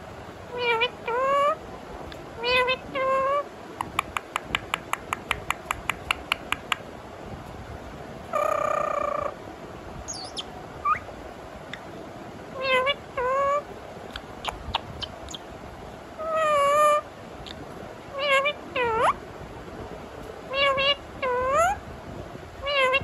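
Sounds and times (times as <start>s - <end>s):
parakeet meow-like calls: 0.5s - 1.6s, 2.4s - 3.5s, 8.3s - 9.4s, 10.1s - 11.1s, 12.6s - 13.7s, 16.2s - 17.0s, 18.1s - 19.2s, 20.5s - 21.8s, 22.6s - 23.0s
parakeet quick clicks: 3.8s - 6.8s.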